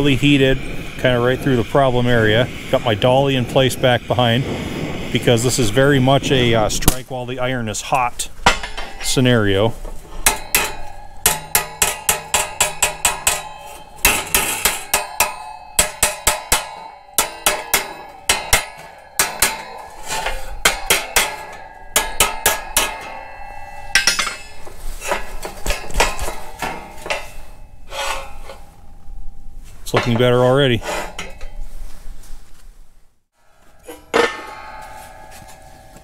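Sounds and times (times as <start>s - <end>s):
hammer ringing on metal: 8.4s - 31.6s, 33.4s - 36.0s.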